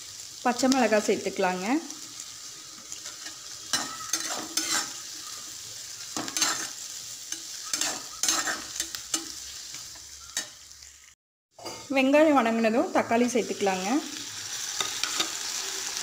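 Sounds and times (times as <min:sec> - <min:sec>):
vegetables sizzling in hot oil: 0:00.0 - 0:16.0
metal spatula scraping pan: 0:02.8 - 0:10.6, 0:14.6 - 0:15.6.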